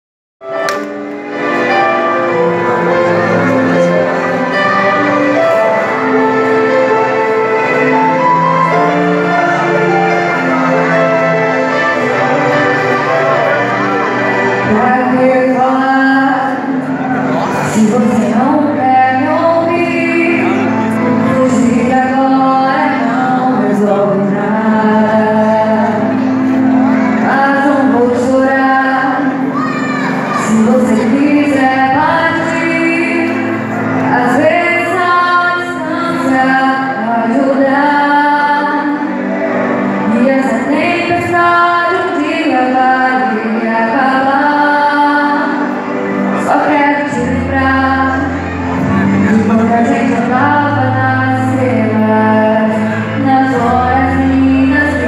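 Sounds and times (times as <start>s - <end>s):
instrumental accompaniment: 0.4s - 55.0s
woman singing into microphone: 14.3s - 55.0s.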